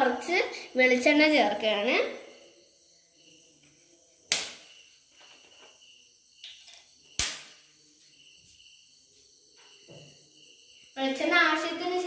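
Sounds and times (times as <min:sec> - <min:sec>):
crickets chirring: 0:00.0 - 0:12.0.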